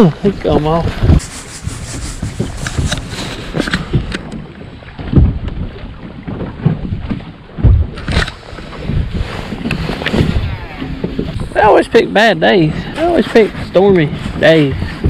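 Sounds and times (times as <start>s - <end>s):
water slapping boat hull: 0.0s - 15.0s
wind buffeting microphone: 0.0s - 15.0s
heavy low thuds: 5.0s - 5.8s, 6.6s - 11.6s.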